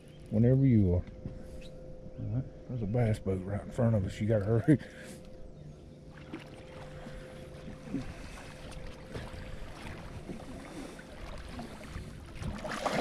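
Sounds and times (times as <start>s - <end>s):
faint boat motor hum: 0.0s - 13.0s
water noise: 6.0s - 13.0s.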